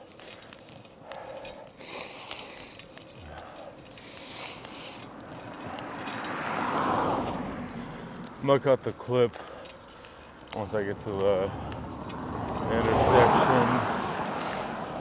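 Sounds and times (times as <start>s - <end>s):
car passing by: 4.2s - 9.4s, 10.5s - 15.0s.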